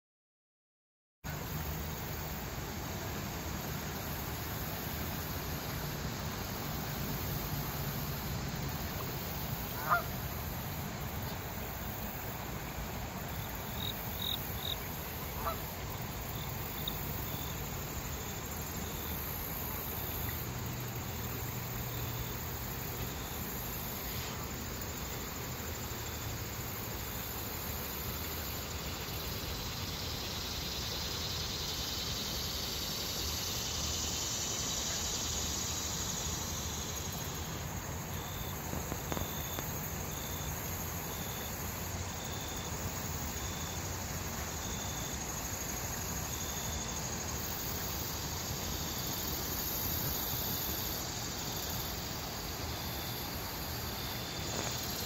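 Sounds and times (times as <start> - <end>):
insects chirping faintly: 1.3 - 55.0
river running over rocks: 1.3 - 55.0.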